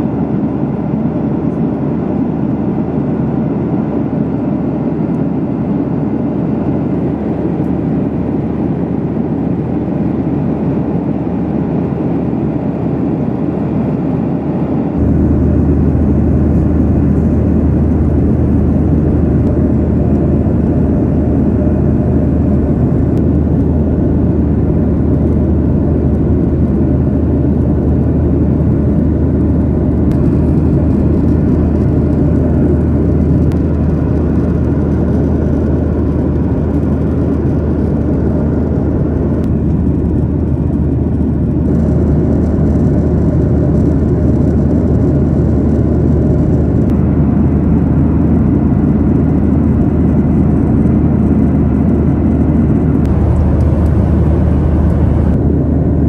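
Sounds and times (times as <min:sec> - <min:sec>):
airplane cabin engine hum: 0:00.0 - 0:56.0
rush of airflow: 0:13.4 - 0:56.0.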